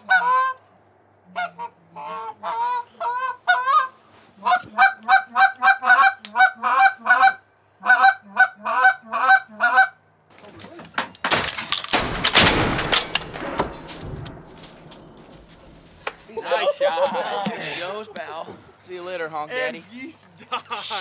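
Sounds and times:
goose honking: 0.0s - 0.6s, 1.3s - 10.0s.

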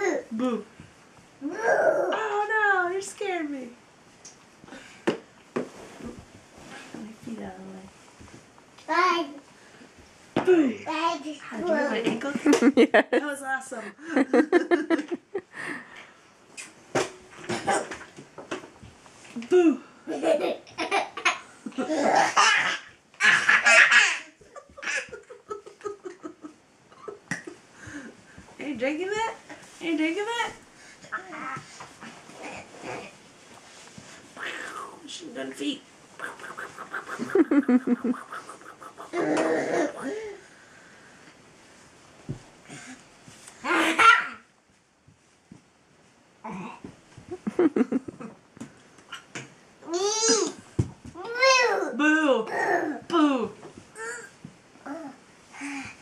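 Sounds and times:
people laughing: 14.0s - 15.4s, 37.2s - 38.2s
toddlers laughing: 20.1s - 27.3s, 37.1s - 38.3s.

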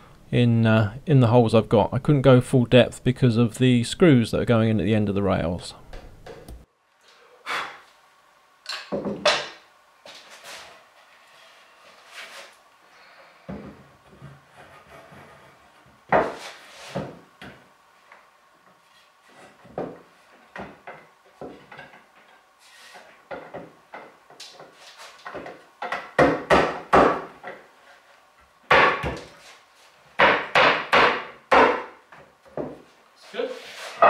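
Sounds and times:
sharp wooden knocks: 23.3s - 27.6s, 28.7s - 29.3s, 30.2s - 32.8s.

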